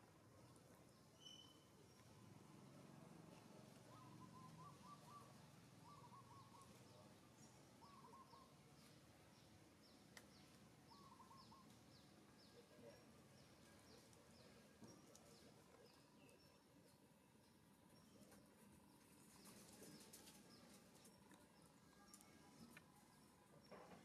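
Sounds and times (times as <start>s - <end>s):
low outdoor background noise: 0.0s - 24.0s
distant bird calls: 1.0s - 2.1s, 3.3s - 24.0s
faint high chirp: 1.1s - 2.1s, 3.9s - 7.1s.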